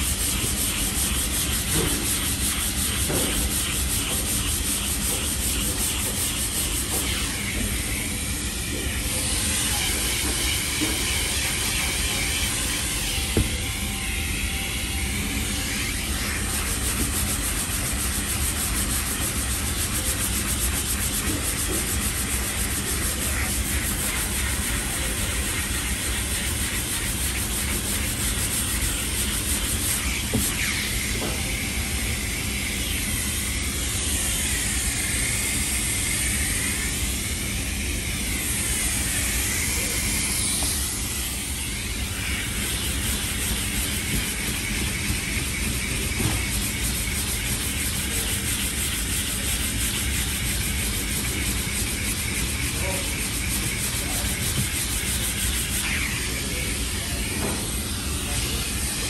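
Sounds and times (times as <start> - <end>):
sandpaper rasping: 0.0 - 57.3
dust extractor hiss and hum: 0.0 - 59.0.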